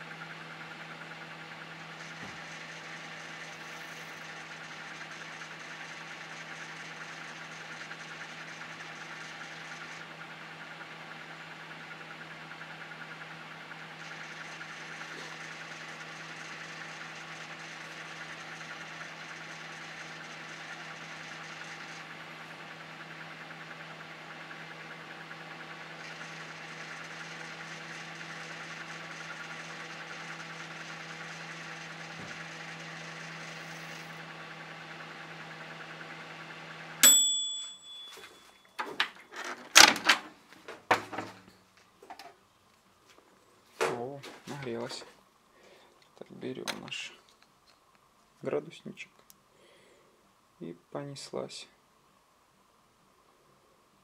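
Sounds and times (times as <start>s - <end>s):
microwave oven humming: 0.0s - 43.8s
microwave bell ding: 37.0s - 38.8s.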